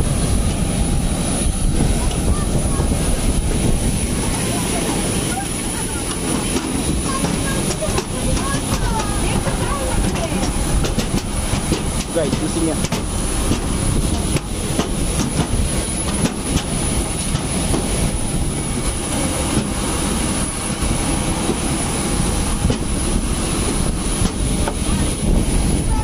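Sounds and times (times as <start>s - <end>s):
jet aircraft rumble and hiss: 0.0s - 26.0s
footsteps on metal stairway: 4.6s - 24.9s.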